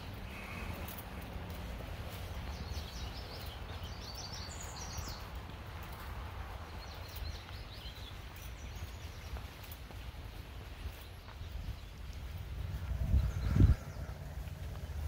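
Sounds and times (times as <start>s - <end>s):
footsteps on dirt trail: 0.0s - 15.0s
songbird singing: 0.0s - 15.0s
steady low rumble: 11.4s - 15.0s.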